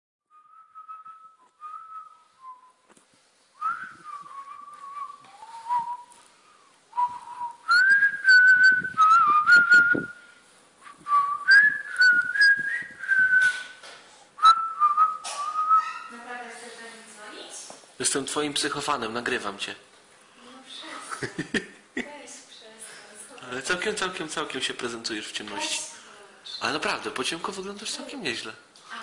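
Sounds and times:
person whistling a tune: 0:00.3 - 0:02.8, 0:03.6 - 0:06.1, 0:07.0 - 0:10.2, 0:10.8 - 0:13.7, 0:14.4 - 0:16.0
rustling: 0:01.4 - 0:14.1.

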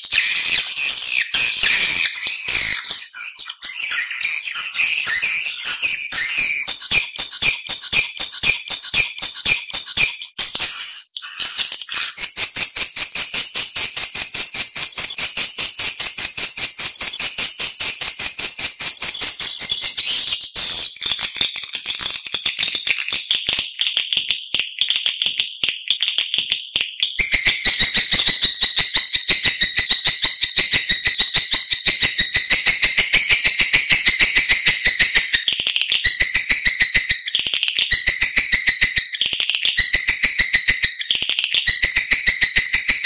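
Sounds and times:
swiftlet chirping twitter: 0:00.0 - 0:14.0.

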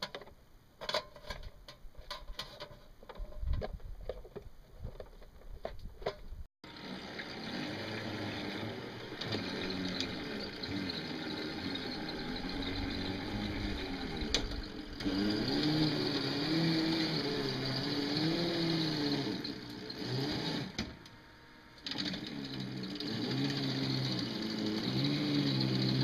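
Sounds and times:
electric motor whining: 0:06.7 - 0:26.0.

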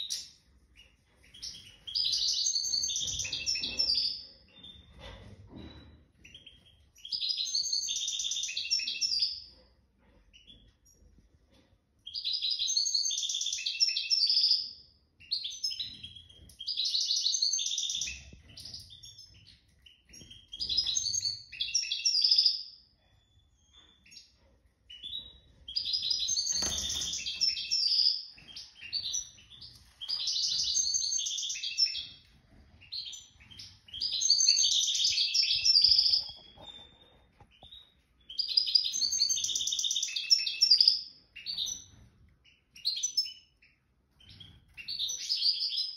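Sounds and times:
songbird singing: 0:24.9 - 0:43.6.

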